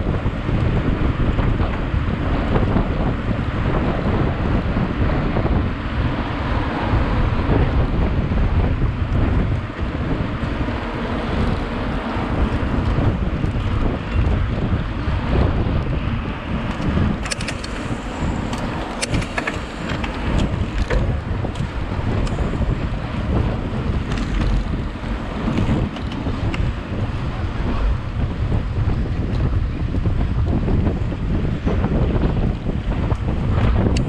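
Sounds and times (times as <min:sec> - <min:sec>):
wind buffeting microphone: 0:00.0 - 0:34.0
sharp clicks and rattles: 0:16.6 - 0:23.2, 0:23.9 - 0:26.7.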